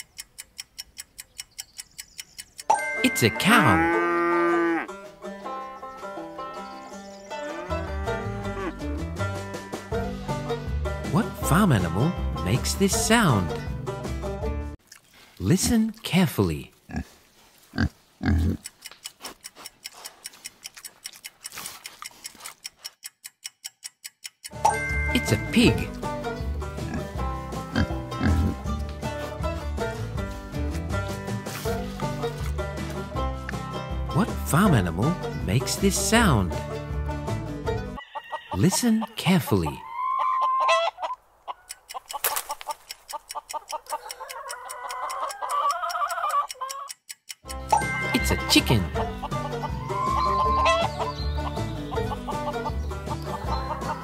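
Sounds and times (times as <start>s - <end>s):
timer ticking: 0.0s - 4.0s, 18.2s - 28.7s, 41.5s - 50.4s
pig grunting: 16.9s - 18.6s, 26.8s - 28.6s
chicken clucking: 38.0s - 47.1s, 47.8s - 54.0s.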